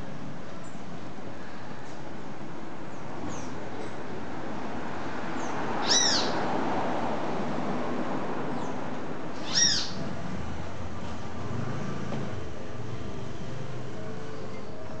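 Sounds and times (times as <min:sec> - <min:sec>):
bird squawking: 0:05.8 - 0:06.4, 0:09.4 - 0:10.0.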